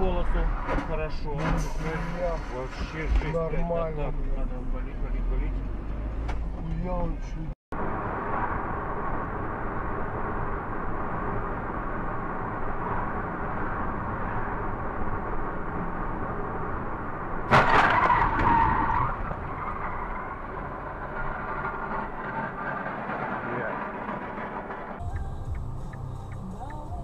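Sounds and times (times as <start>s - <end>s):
car road and engine noise: 0.0s - 27.0s
loud crash with squeal: 0.7s - 3.4s, 17.5s - 25.0s.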